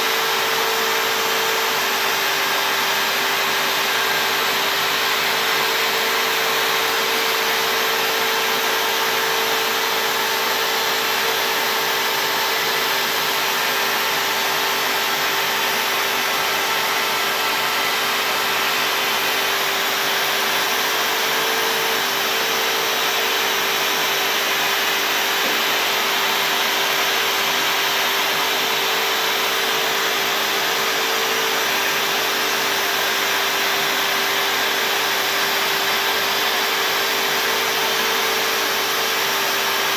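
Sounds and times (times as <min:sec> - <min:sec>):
router spindle whining: 0:00.0 - 0:39.9.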